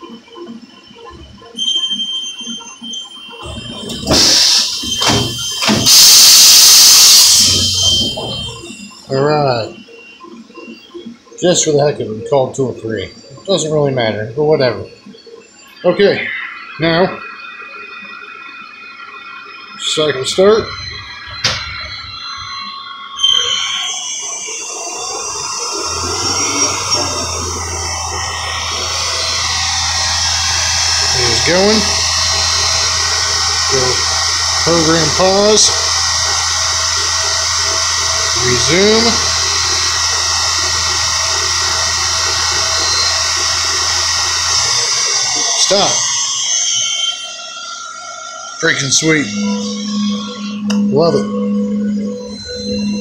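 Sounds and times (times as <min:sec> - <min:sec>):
mill spindle high-pitched whine: 0:00.0 - 0:53.0
low hum: 0:19.8 - 0:53.0.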